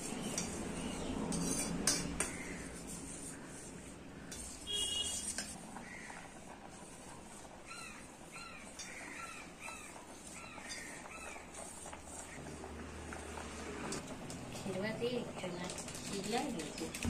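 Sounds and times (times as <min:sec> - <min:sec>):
metal spoon clinking on pot: 0:01.3 - 0:02.5.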